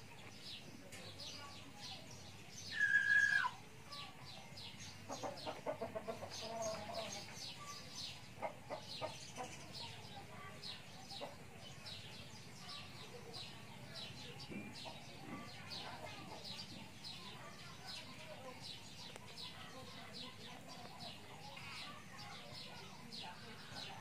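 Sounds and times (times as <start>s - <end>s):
small birds chirping: 0.0s - 24.0s
hen clucking: 5.0s - 7.4s, 8.2s - 9.8s.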